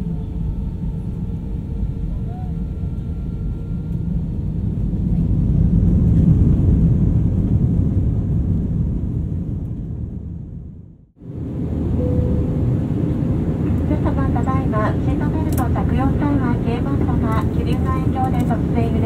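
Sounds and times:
jet engine cabin rumble: 0.0s - 19.0s.

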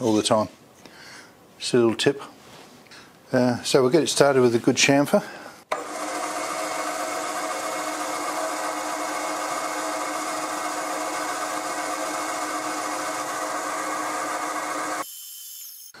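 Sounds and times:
milling machine humming: 5.7s - 15.0s.

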